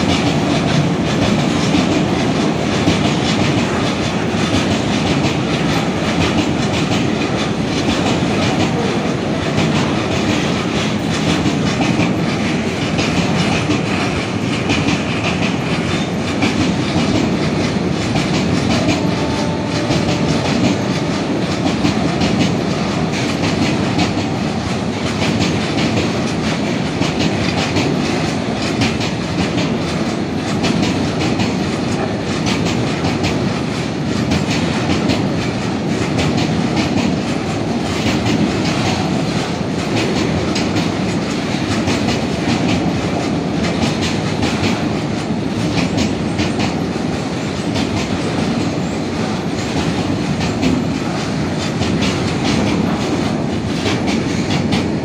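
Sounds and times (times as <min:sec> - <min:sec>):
freight train rumbling past: 0:00.0 - 0:55.0
wheels clickety-clack over rail joints: 0:00.0 - 0:55.0.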